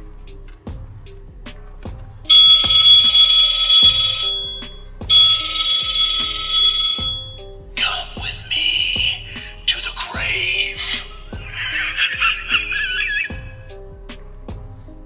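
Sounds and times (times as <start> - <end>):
background music with steady beat: 0.0 - 15.0
shrill electronic alarm bursts: 2.3 - 7.4, 10.5 - 13.6
wavering sliding shriek: 10.9 - 13.6.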